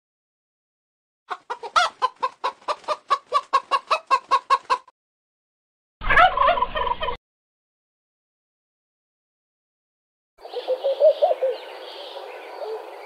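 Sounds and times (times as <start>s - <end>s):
turkey gobbling: 1.3s - 4.8s, 6.0s - 7.2s
hen clucking: 1.3s - 4.9s, 6.1s - 7.2s.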